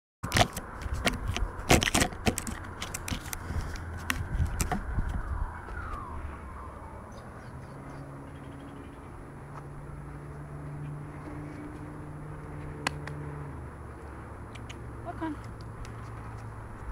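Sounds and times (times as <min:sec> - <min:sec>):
camera handling knocks and scrapes: 0:00.3 - 0:05.3
low steady drone: 0:03.4 - 0:14.4.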